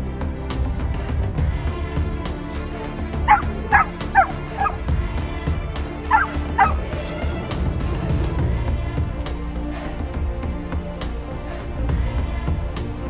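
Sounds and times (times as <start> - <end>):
background music: 0.0 - 13.0
puppy yipping: 3.3 - 4.8, 6.1 - 6.8.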